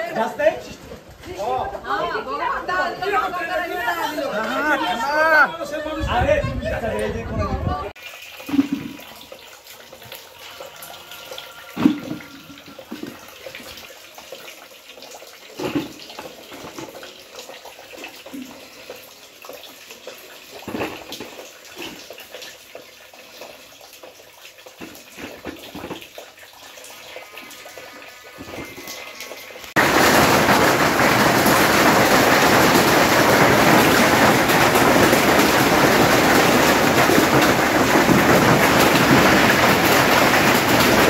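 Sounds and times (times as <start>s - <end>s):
dripping water: 7.9s - 41.0s
steady rain: 26.9s - 41.0s
heavy downpour of hail and rain: 28.4s - 41.0s.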